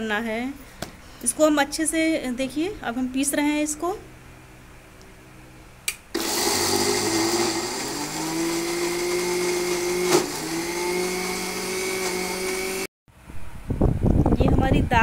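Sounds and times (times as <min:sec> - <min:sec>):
mixer grinder motor running: 0:06.1 - 0:12.9.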